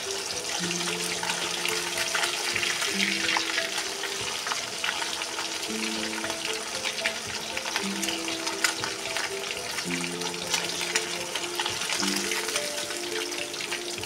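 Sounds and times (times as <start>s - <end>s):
fish sizzling in hot oil: 0.0s - 14.0s.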